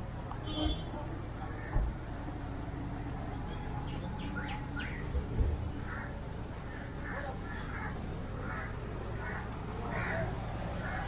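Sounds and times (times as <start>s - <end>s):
high bird calls: 3.5s - 5.1s
crows cawing: 5.8s - 11.0s.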